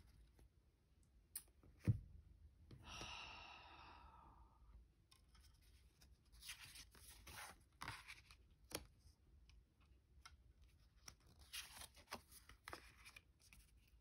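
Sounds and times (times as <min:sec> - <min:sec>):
soft sigh: 0:02.7 - 0:04.7.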